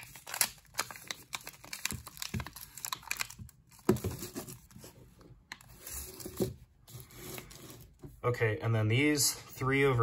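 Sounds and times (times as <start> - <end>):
paper wrapper crinkling: 0.0 - 4.8.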